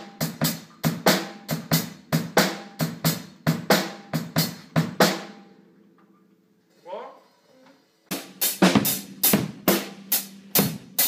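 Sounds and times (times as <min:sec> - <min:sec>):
drum kit playing a steady beat: 0:00.0 - 0:05.8, 0:08.1 - 0:11.0.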